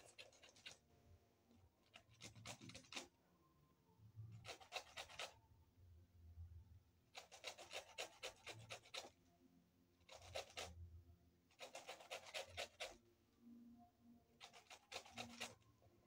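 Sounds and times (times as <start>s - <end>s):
rind rasping on metal grater: 11.6s - 13.0s, 14.4s - 15.6s.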